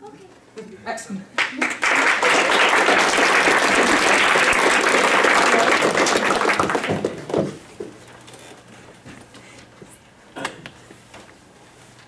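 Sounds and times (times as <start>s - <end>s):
audience applauding: 1.4s - 7.6s.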